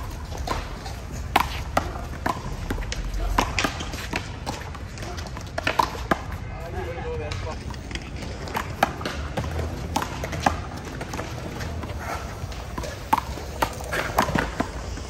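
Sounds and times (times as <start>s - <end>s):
shoes scuffing asphalt: 10.3s - 15.0s.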